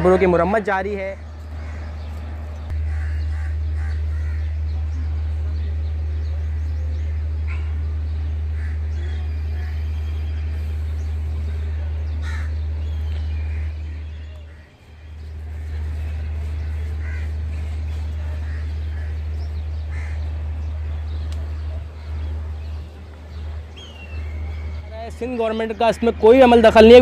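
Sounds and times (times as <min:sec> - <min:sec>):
steady low rumble: 0:01.1 - 0:25.3
crows cawing: 0:01.2 - 0:04.6, 0:08.5 - 0:09.9, 0:12.1 - 0:12.7, 0:13.4 - 0:14.8, 0:15.4 - 0:20.3.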